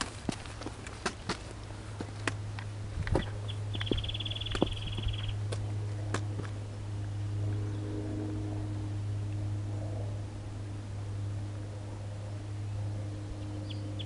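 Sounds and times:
footsteps on stone: 0:00.0 - 0:06.6
steady low hum: 0:00.0 - 0:14.0.

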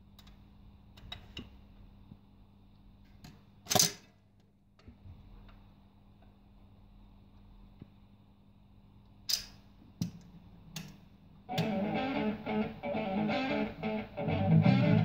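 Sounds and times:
stylus clicking on vinyl record: 0:11.5 - 0:11.9
electric guitar rock music: 0:11.5 - 0:15.0.

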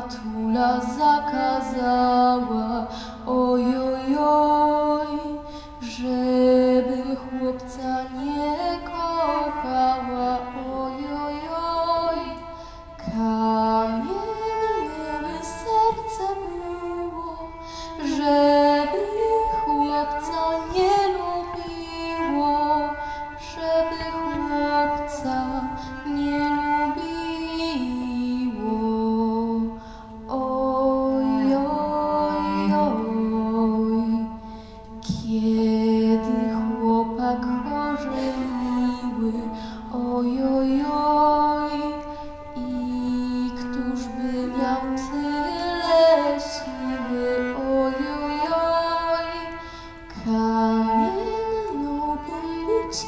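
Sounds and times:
woman singing a folk song: 0:00.0 - 0:53.0.

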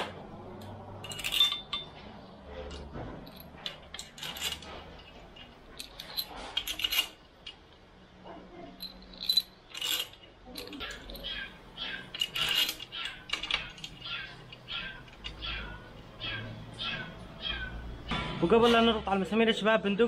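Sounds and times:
metal parts clinking: 0:00.0 - 0:07.8, 0:08.8 - 0:16.3.

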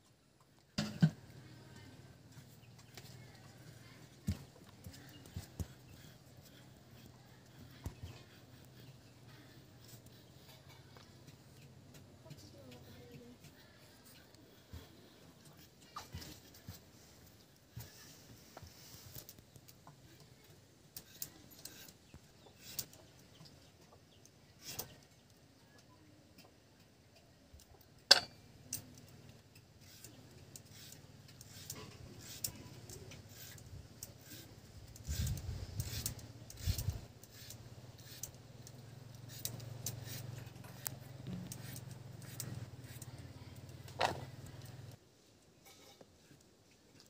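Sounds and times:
blade cutting through fruit: 0:29.8 - 0:44.6.

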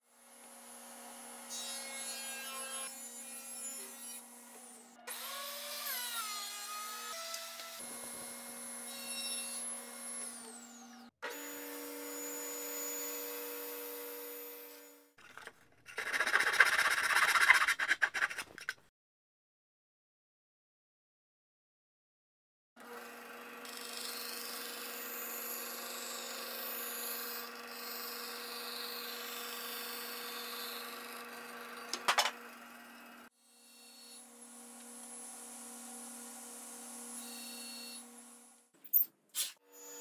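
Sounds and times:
hand saw cutting a board: 0:15.9 - 0:18.8
power tools running: 0:33.9 - 0:38.6.

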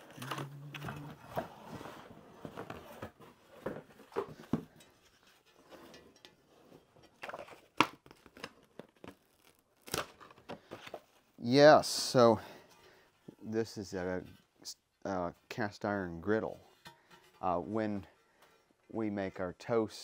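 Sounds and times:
cardboard tearing and rustling: 0:07.2 - 0:10.4.

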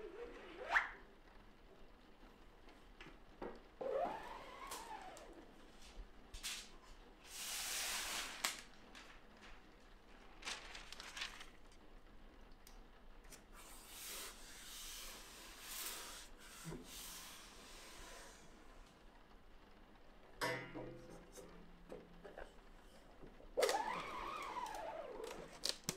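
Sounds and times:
paper rustling and sliding: 0:03.8 - 0:11.9, 0:23.6 - 0:25.9.

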